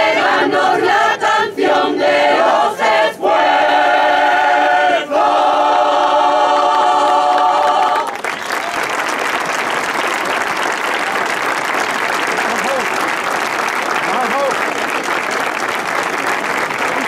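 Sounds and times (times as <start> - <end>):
choir singing: 0.0 - 8.2
applause: 7.0 - 17.0.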